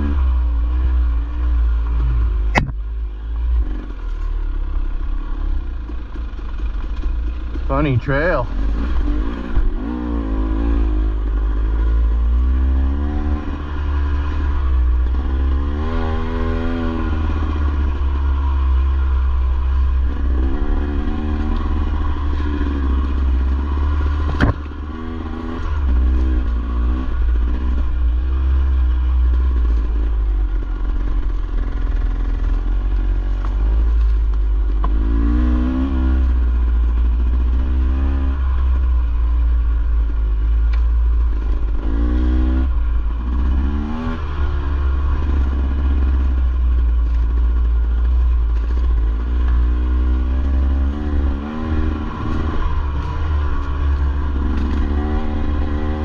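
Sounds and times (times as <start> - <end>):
sharp knock: 2.5 - 2.8
dirt bike engine revving: 7.5 - 30.1, 49.0 - 56.0.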